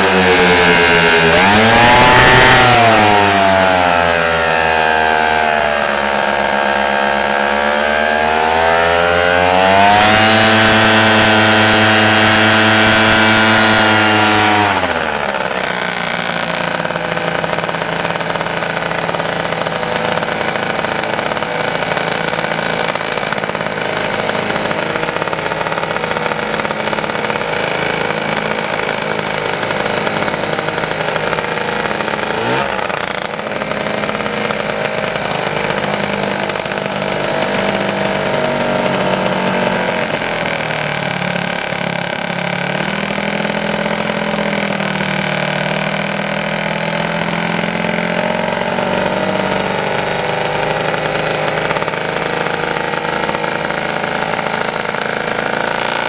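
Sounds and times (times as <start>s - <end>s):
two-stroke paramotor engine running: 0.0s - 56.0s.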